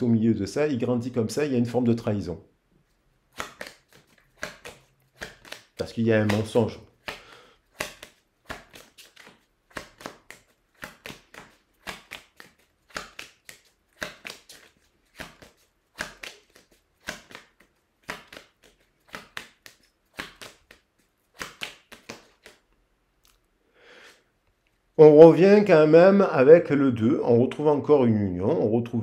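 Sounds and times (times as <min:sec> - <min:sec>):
cards being shuffled: 0:03.3 - 0:23.4.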